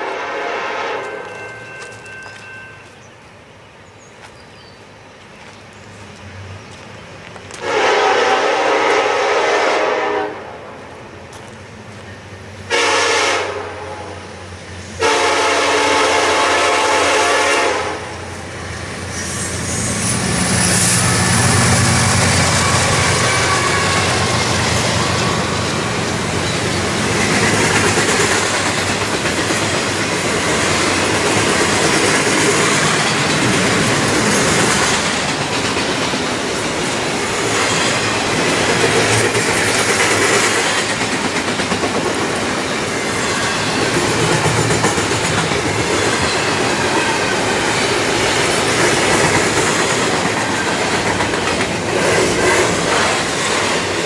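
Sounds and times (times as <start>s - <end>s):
train horn blasts: 0.0s - 2.0s, 7.6s - 10.6s, 12.7s - 14.3s, 15.0s - 18.3s, 22.4s - 24.4s
train cars clacking on rails: 0.0s - 3.2s, 19.8s - 54.0s
locomotive engines rumbling: 4.8s - 54.0s.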